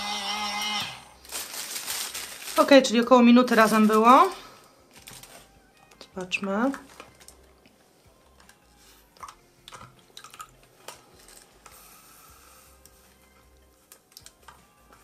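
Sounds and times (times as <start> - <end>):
water dripping: 9.2 - 10.7.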